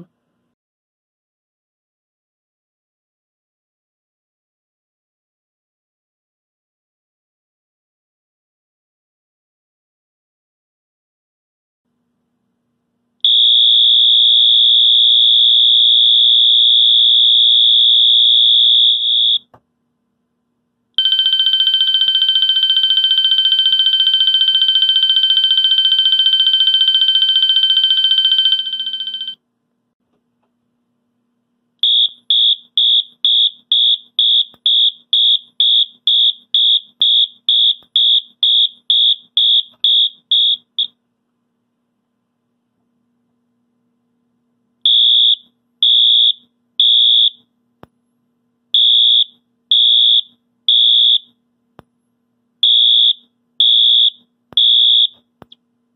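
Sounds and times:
fast short alarm beeps: 13.3s - 19.4s, 21.0s - 29.4s, 31.8s - 40.9s, 44.9s - 47.4s, 48.8s - 51.3s, 52.6s - 55.2s
harsh buzzy alarm tone: 13.3s - 19.4s, 21.0s - 29.4s, 31.8s - 40.9s, 44.9s - 47.4s, 48.8s - 51.3s, 52.6s - 55.2s
steady high alarm horn tone: 13.3s - 19.4s, 21.0s - 29.4s, 31.8s - 40.9s, 48.8s - 51.3s, 52.6s - 55.2s.

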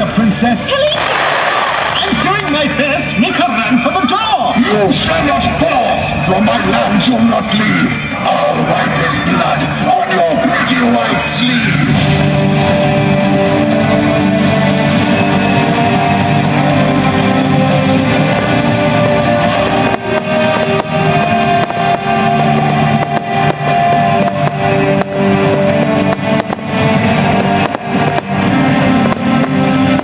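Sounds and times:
fireworks bangs and crackles: 0.9s - 3.8s, 14.1s - 30.0s
loud guitar-led music: 4.5s - 30.0s.

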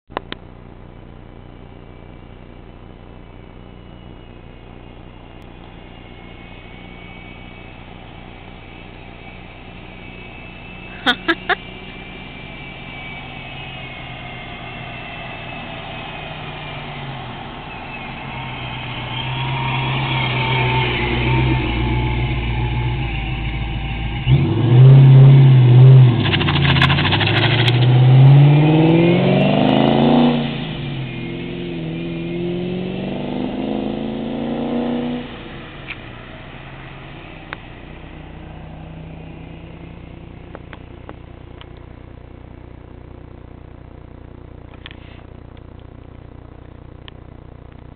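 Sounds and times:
car engine revving hard: 9.2s - 40.7s.

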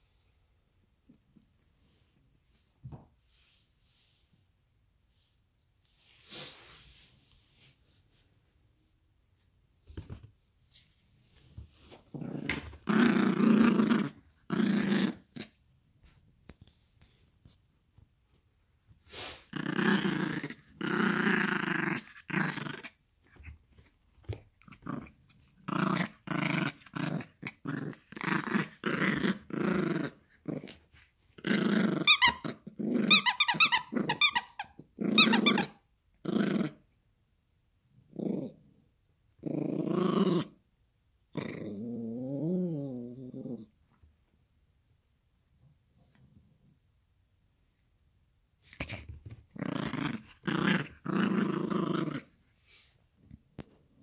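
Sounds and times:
small dog play-growling: 11.4s - 15.6s, 19.2s - 36.9s, 38.0s - 38.8s, 39.4s - 40.6s, 41.3s - 43.8s, 48.6s - 54.0s.

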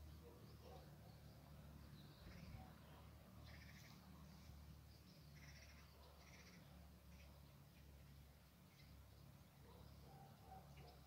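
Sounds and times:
faint bird chirps: 0.0s - 8.0s.

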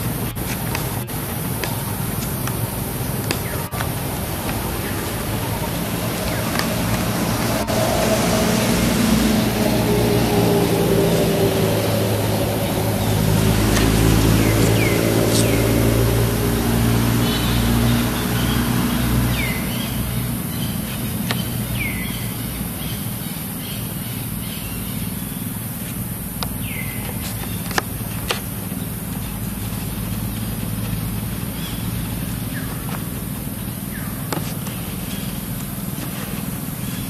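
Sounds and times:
bird chirping: 0.0s - 25.5s
vehicle engine humming: 0.0s - 37.0s.

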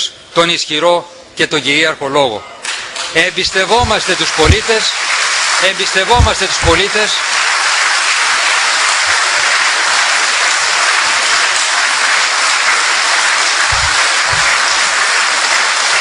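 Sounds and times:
audience applauding: 3.4s - 16.0s.

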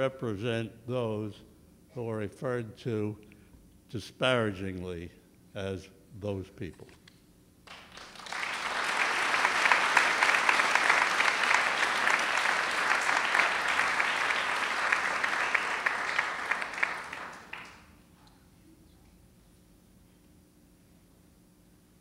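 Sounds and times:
audience applauding: 7.7s - 17.9s.

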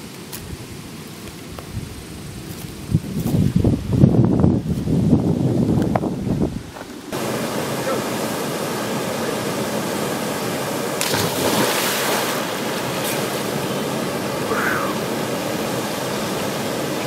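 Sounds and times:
waterfall rushing into pool: 7.1s - 17.0s
person splashing into water: 11.0s - 13.4s.

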